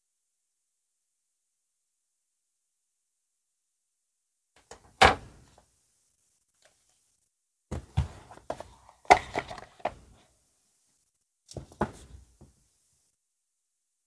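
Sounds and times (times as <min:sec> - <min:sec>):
paperboard box knocks and scrapes: 0:07.7 - 0:10.0, 0:11.6 - 0:12.5.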